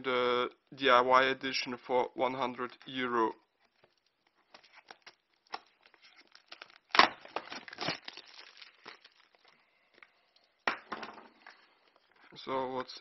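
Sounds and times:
plastic shrink-wrap crinkling: 0:02.6 - 0:10.7, 0:11.3 - 0:12.4
plastic wrap ripping: 0:03.6 - 0:10.1.

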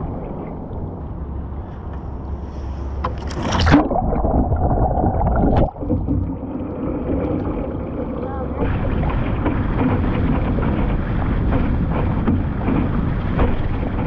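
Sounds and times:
kayak splash: 0:02.5 - 0:14.0
muffled underwater gurgling: 0:03.3 - 0:12.7.

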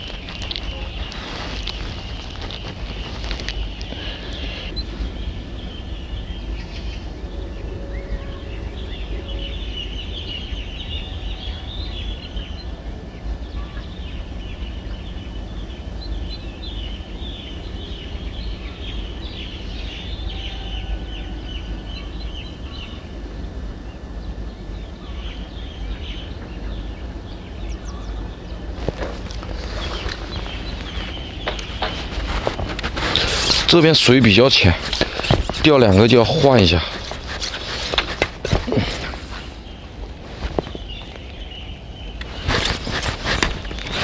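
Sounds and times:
small birds chirping: 0:00.0 - 0:44.0
wind rumble on microphone: 0:00.0 - 0:44.0.

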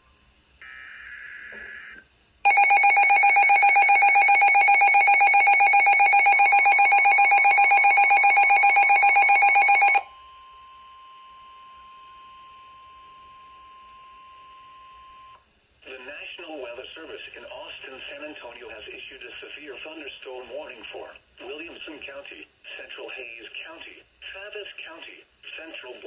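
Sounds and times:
chirping digital data tones: 0:02.5 - 0:10.0
radio alarm beeping fast: 0:02.5 - 0:10.0
steady warning alarm tone: 0:02.5 - 0:10.1.

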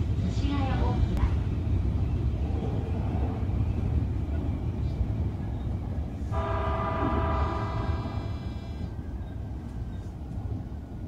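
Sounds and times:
train rumbling along track: 0:00.0 - 0:11.0
train horn blast: 0:06.3 - 0:08.9.

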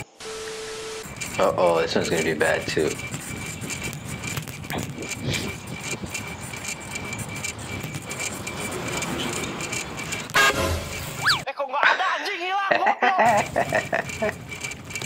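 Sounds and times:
road traffic passing: 0:00.0 - 0:11.4
truck horn blast: 0:10.3 - 0:11.1.

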